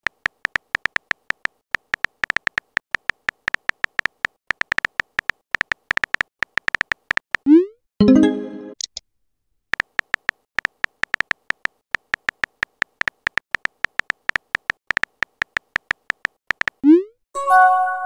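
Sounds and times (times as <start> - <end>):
keyboard key clicks: 0.1 - 7.2, 9.8 - 16.8.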